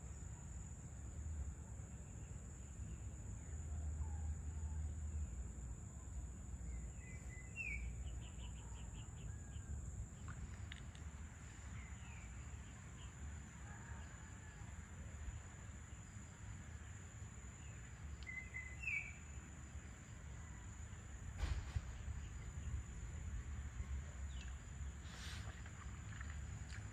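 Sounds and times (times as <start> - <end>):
bird chirping: 6.7 - 11.0, 17.6 - 19.4.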